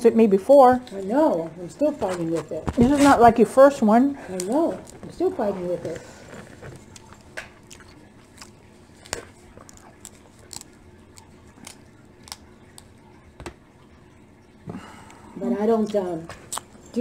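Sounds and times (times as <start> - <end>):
chewing: 4.3 - 13.3, 15.9 - 17.0
crab shells cracking: 4.4 - 5.2, 6.4 - 13.0.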